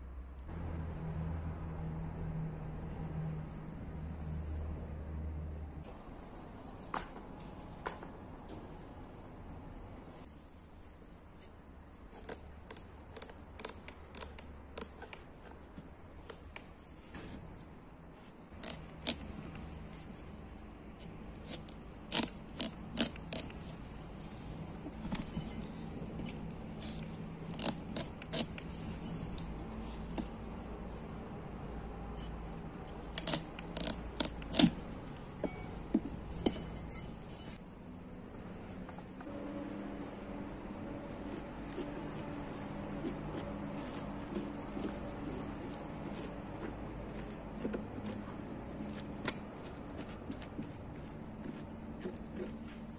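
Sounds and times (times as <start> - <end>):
knife cutting pumpkin on board: 41.1 - 52.9.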